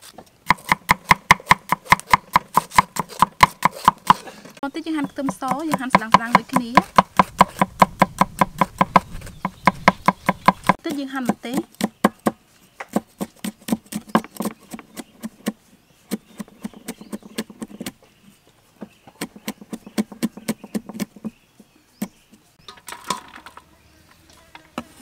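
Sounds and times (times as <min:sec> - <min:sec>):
cleaver chopping on wooden board: 0:00.4 - 0:04.3, 0:05.0 - 0:18.0, 0:18.8 - 0:21.4.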